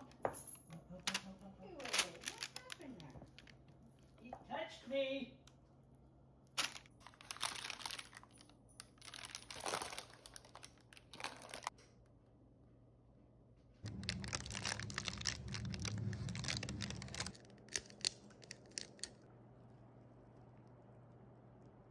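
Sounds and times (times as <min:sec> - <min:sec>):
parchment paper crinkling: 0:01.2 - 0:04.2, 0:06.5 - 0:11.8, 0:13.8 - 0:21.1
low hum: 0:12.1 - 0:21.9.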